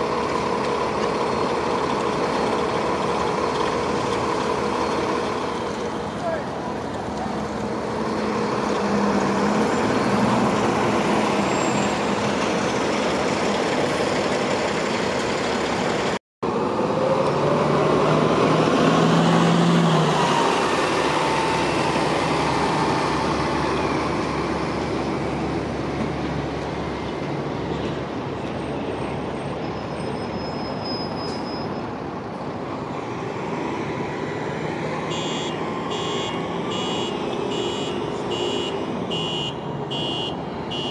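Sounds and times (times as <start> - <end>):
bus diesel engines: 0.0 - 40.9
bus pulling away: 0.0 - 40.9.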